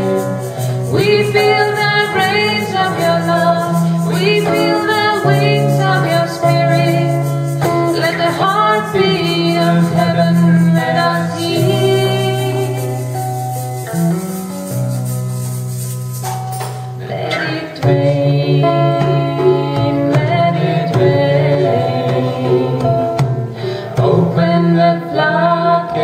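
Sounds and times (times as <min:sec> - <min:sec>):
woman singing: 0:00.0 - 0:13.2, 0:17.0 - 0:26.0
shaker: 0:00.0 - 0:17.8.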